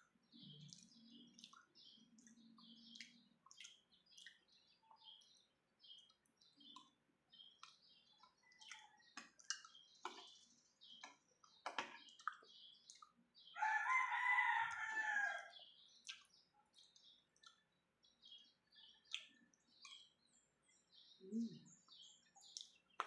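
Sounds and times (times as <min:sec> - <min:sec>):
small bird chirps: 0:00.0 - 0:23.0
rooster crowing: 0:13.6 - 0:15.5.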